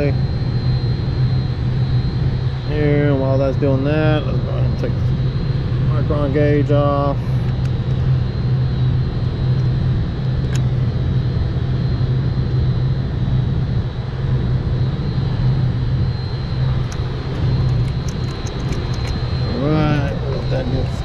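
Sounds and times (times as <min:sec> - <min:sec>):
low mechanical drone: 0:00.0 - 0:21.0
sharp click: 0:17.6 - 0:19.2.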